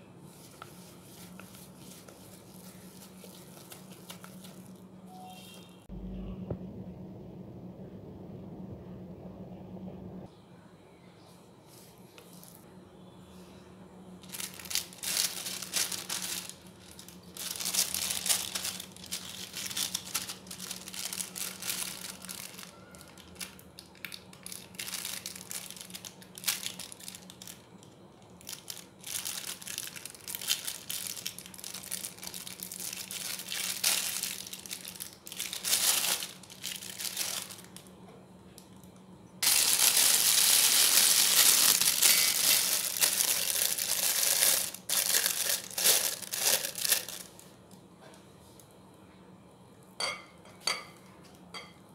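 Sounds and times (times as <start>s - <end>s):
plastic bag crinkling and rustling: 0.4s - 4.9s, 14.2s - 37.9s, 39.4s - 47.6s.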